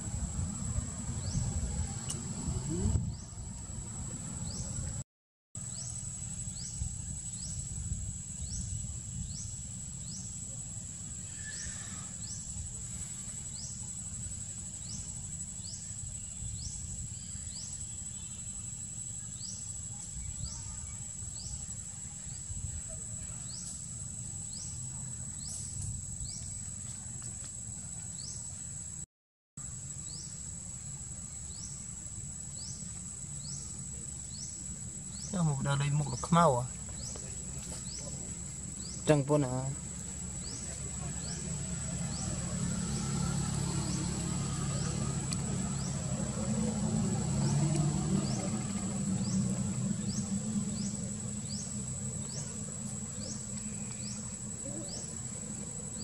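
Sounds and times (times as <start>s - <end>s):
low steady rumble: 0.0s - 5.0s, 29.8s - 56.0s.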